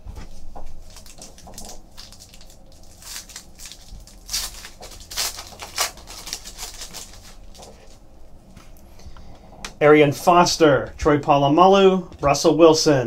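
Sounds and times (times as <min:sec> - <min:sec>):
foil wrapper tearing and crinkling: 0:00.8 - 0:08.0.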